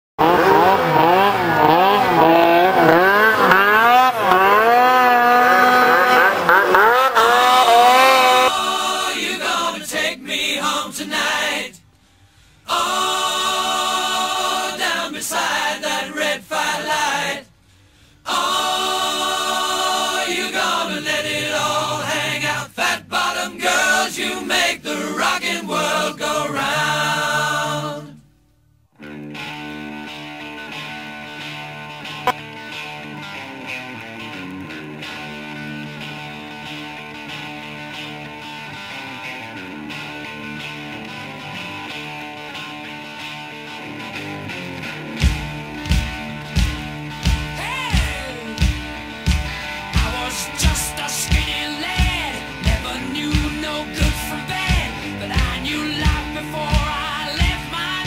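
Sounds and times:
wailing wavering vocal: 0:00.2 - 0:11.7, 0:20.0 - 0:28.2
band with drum hits: 0:45.2 - 0:57.7.

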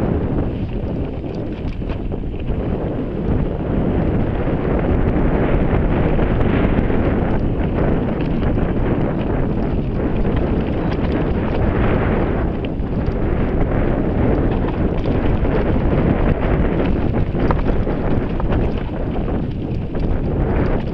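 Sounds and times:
bike rattles and clicks: 0:00.0 - 0:20.9
tyre rumble: 0:00.0 - 0:20.9
wind buffeting microphone: 0:00.0 - 0:20.9.

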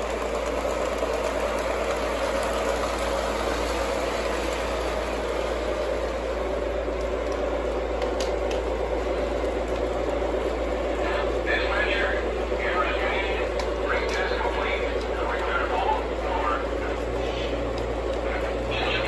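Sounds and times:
model train motors whirring: 0:00.0 - 0:19.0.

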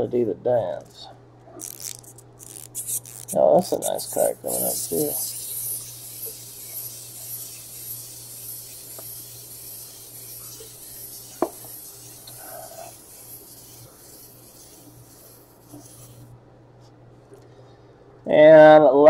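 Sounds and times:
toy motor whirring: 0:01.6 - 0:16.3.

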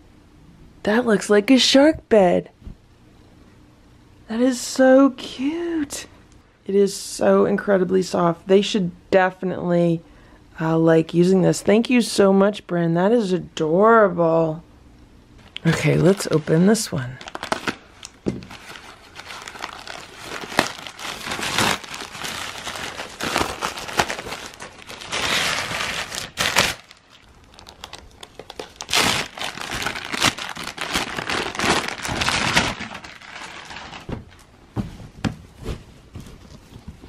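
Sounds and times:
plastic packaging crinkling: 0:15.6 - 0:34.5.

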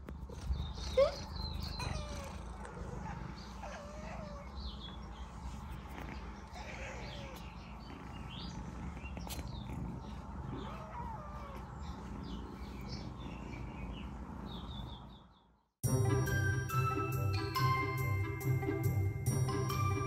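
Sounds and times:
kittens mewing and chirping: 0:00.0 - 0:15.4.

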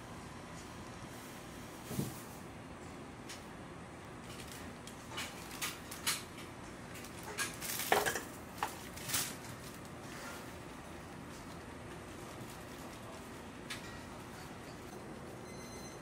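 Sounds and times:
utensils and bakeware clinking: 0:07.0 - 0:09.5, 0:13.6 - 0:15.2.

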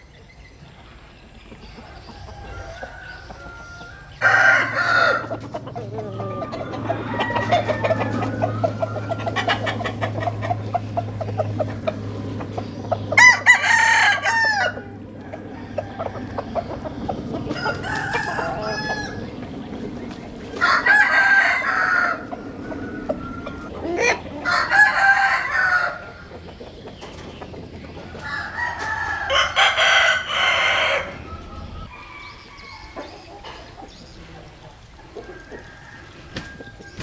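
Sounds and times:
rooster crowing: 0:01.9 - 0:10.6, 0:13.2 - 0:19.3, 0:20.6 - 0:26.2, 0:28.1 - 0:33.2, 0:35.2 - 0:37.0
soft rooster call: 0:02.1 - 0:05.4, 0:20.6 - 0:26.0, 0:28.2 - 0:33.1.

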